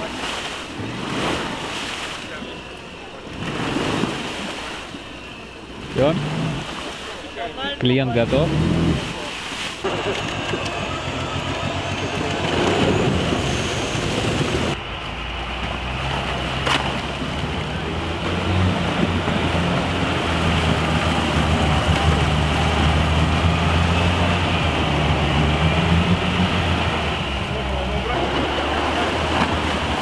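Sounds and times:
off-road vehicle engine running: 5.1 - 6.7, 7.8 - 30.0
rushing noise: 9.8 - 30.0.

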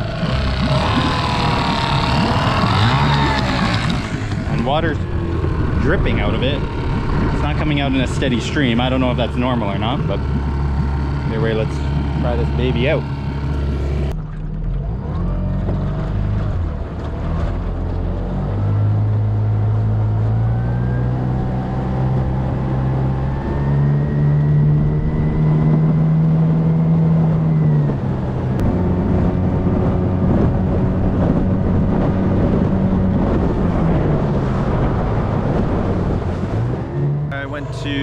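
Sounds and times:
outboard motor running: 0.0 - 38.0.

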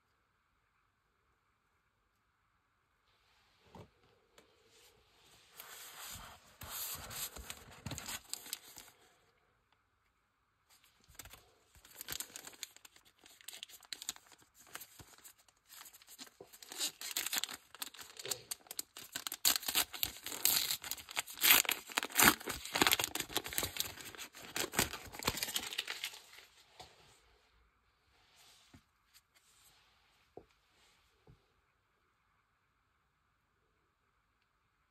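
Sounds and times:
foil wrapper tearing and crinkling: 7.3 - 8.9, 11.1 - 26.3.

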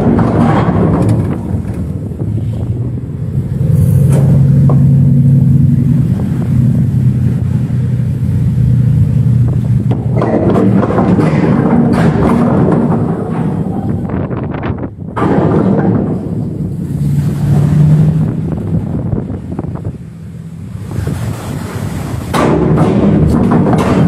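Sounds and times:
boat engine droning: 0.0 - 24.0
water noise: 0.0 - 24.0
wind buffeting microphone: 0.0 - 24.0.

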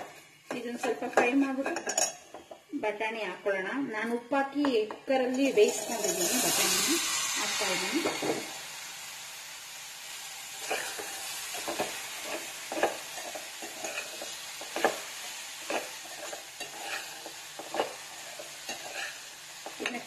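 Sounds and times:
spoon scraping and knocking pot: 0.0 - 2.7, 4.8 - 6.7, 10.6 - 20.0
peas sizzling in oil: 0.0 - 3.7, 4.6 - 20.0.

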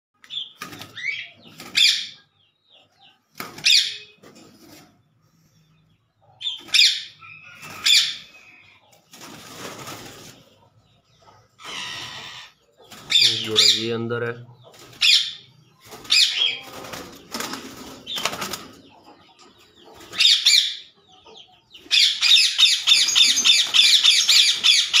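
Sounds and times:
parakeets calling: 0.3 - 4.2, 5.7 - 8.9, 10.5 - 14.0, 14.6 - 25.0
wings flapping and rustling: 0.4 - 1.9, 3.3 - 5.0, 8.9 - 10.7, 15.8 - 19.0, 22.9 - 25.0.

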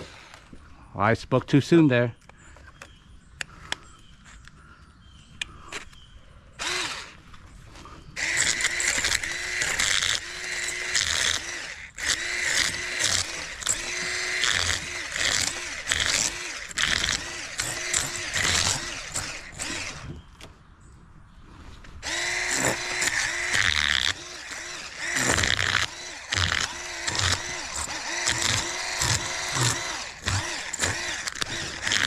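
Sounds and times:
electric fish scaler whining and rasping: 0.0 - 0.6, 6.6 - 7.2, 8.2 - 20.2, 22.0 - 32.0.

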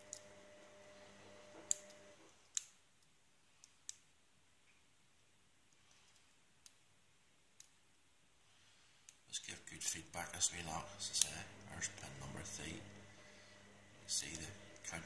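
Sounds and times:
faint low hum: 0.0 - 15.0
lock pick clicks: 1.6 - 4.0.

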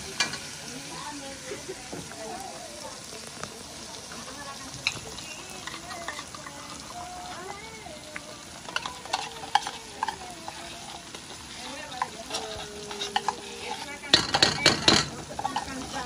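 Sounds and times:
vegetables sizzling in oil: 0.0 - 16.0
metal spoon scraping a tin can: 8.7 - 16.0
spoon knocking against pot: 14.1 - 15.6.

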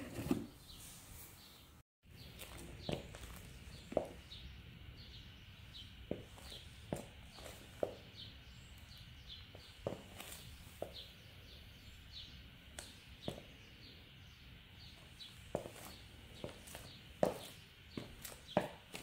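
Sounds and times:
sneaker footsteps on wooden floor: 6.1 - 8.1, 15.5 - 19.0.

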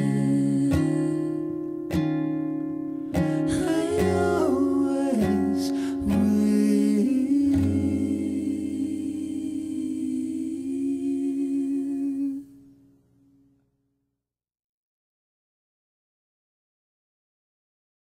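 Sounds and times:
soft musical accompaniment: 0.0 - 12.6.

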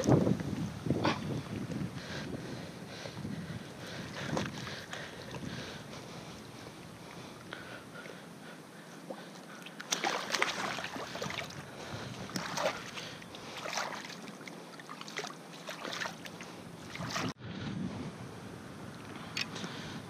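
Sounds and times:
water splashing: 9.1 - 17.4
hands swishing through water: 9.7 - 17.4.

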